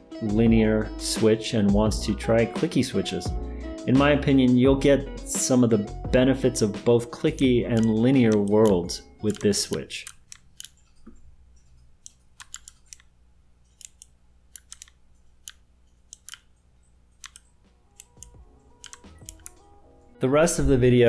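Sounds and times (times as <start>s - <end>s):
clicky mechanical keyboard keystrokes: 7.7s - 10.8s, 12.1s - 13.1s, 13.7s - 16.5s, 17.2s - 19.6s.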